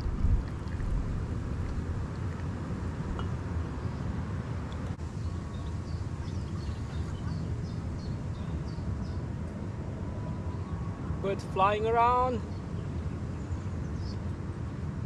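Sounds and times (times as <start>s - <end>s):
wind buffeting microphone: 0.0s - 15.0s
small birds chirping: 5.0s - 9.3s, 12.1s - 14.3s.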